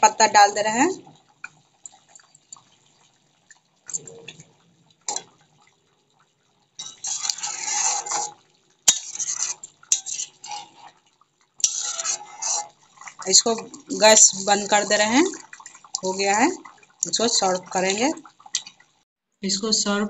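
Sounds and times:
metal spatula scraping a pan: 6.8s - 11.0s, 11.6s - 15.3s.

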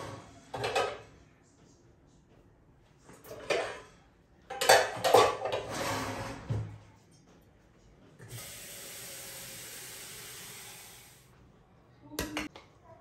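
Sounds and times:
pots and utensils rattling: 3.3s - 3.9s, 4.5s - 5.9s.

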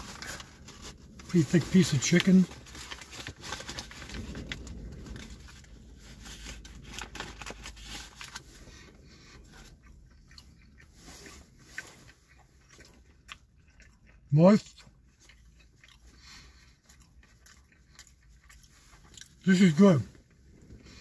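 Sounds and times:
crunchy chewing: 6.3s - 21.0s.

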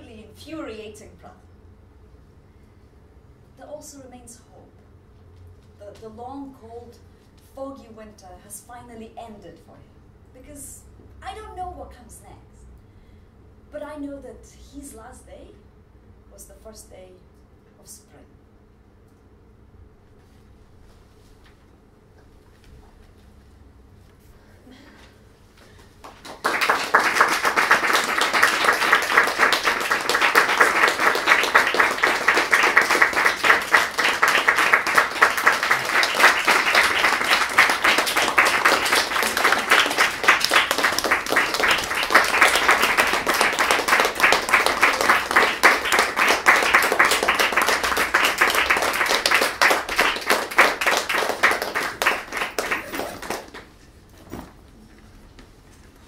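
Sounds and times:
audience applauding: 26.0s - 53.8s.

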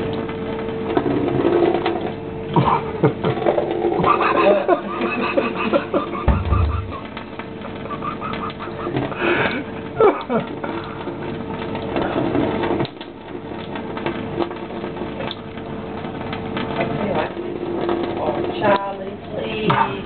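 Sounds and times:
tap water running: 0.0s - 20.0s
water pattering on wet fur: 4.0s - 19.8s.

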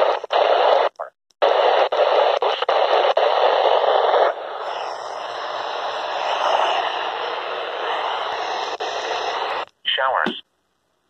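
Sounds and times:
radio static hiss: 0.0s - 10.5s.

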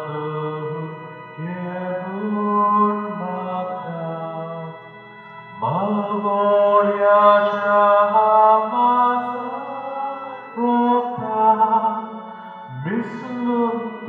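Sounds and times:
hymn sung in slow notes: 0.0s - 14.0s.

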